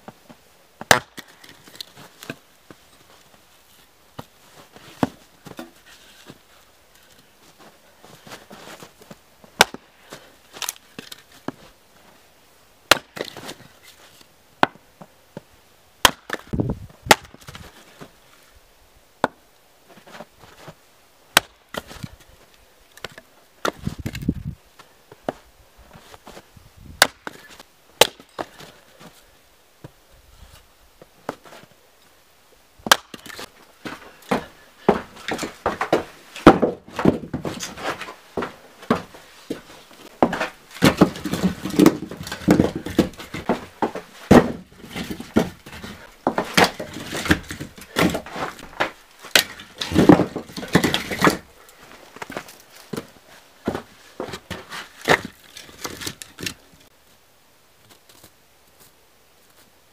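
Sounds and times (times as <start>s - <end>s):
hatchet chopping firewood: 0.8s - 2.4s, 9.6s - 9.8s, 12.9s - 13.6s, 14.6s - 14.8s, 16.0s - 17.6s, 21.3s - 22.2s, 27.0s - 28.7s, 32.8s - 51.5s, 53.7s - 56.6s.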